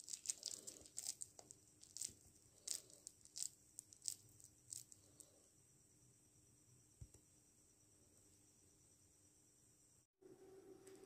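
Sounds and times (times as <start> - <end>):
hand squeezing wet batter: 0.0 - 5.2.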